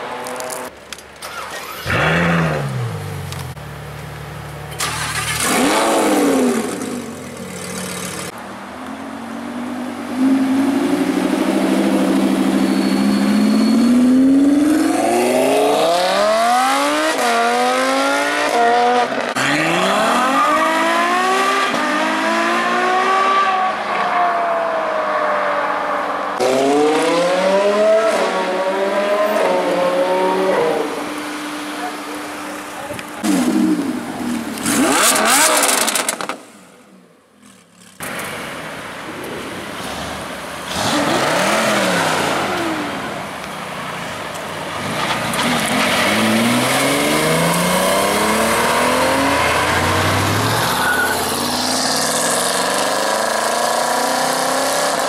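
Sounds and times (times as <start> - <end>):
car engine revving: 4.7 - 8.3, 33.2 - 36.6, 44.9 - 55.0.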